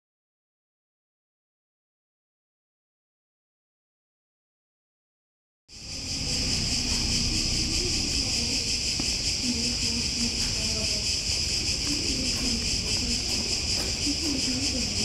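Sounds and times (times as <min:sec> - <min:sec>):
cicadas buzzing: 0:05.7 - 0:15.0
faint distant voices: 0:05.7 - 0:15.0.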